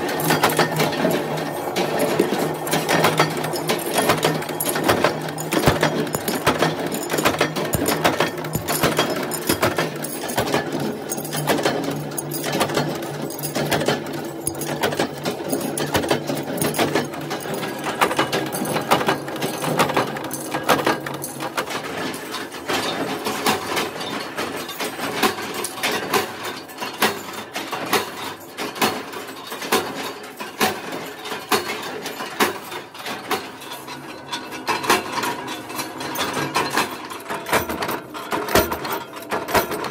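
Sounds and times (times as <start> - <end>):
power presses stamping metal: 1.8 - 17.5
metal clinking: 1.8 - 21.5.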